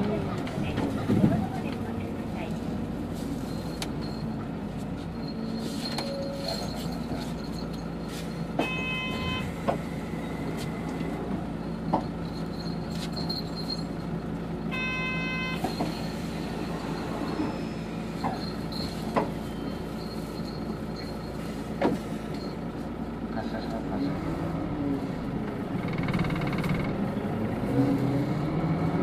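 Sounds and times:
bus drivetrain hum: 0:00.0 - 0:29.0
short electronic beep: 0:08.6 - 0:09.5, 0:14.7 - 0:15.7.

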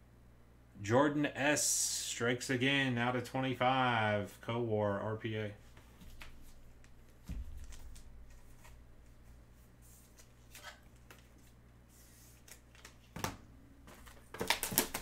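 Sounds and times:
trading cards and wrappers rustling: 0:05.8 - 0:13.2.

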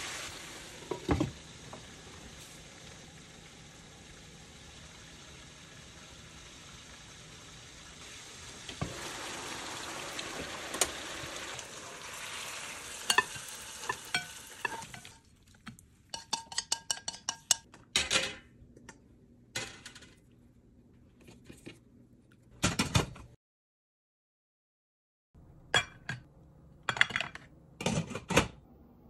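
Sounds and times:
crab sizzling in a frying pan: 0:00.0 - 0:15.2
utensil scraping and clinking on pan: 0:13.0 - 0:15.2, 0:16.1 - 0:17.7.

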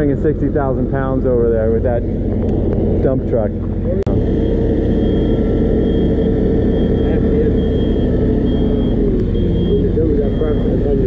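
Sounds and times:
engine running: 0:00.0 - 0:11.0
truck reversing alarm beeps: 0:04.1 - 0:11.0.

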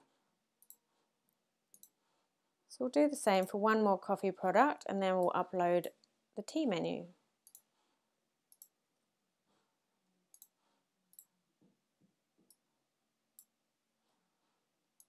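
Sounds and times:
faint computer mouse clicks: 0:01.7 - 0:02.0, 0:10.3 - 0:11.3.

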